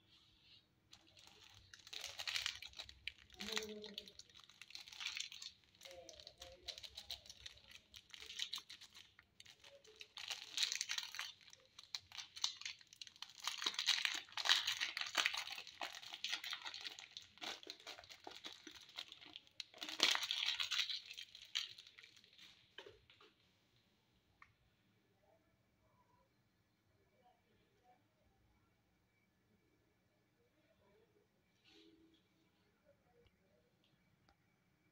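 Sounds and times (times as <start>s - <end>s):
candy wrapper crinkling and tearing: 0.9s - 22.6s.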